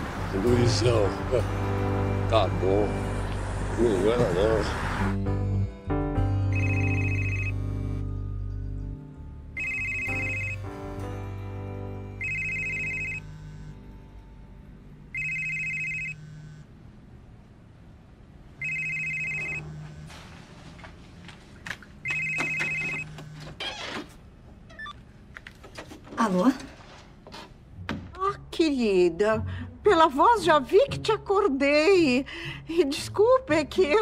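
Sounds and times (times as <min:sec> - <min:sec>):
background music: 0:00.0 - 0:16.1, 0:27.6 - 0:34.0
telephone ringing: 0:06.5 - 0:08.0, 0:09.6 - 0:11.0, 0:12.2 - 0:13.7, 0:15.1 - 0:16.7, 0:18.6 - 0:20.2, 0:22.0 - 0:23.4.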